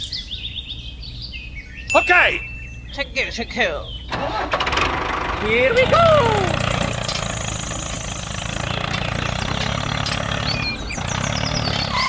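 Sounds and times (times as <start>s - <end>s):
diesel tractor engine idling: 4.1s - 12.0s.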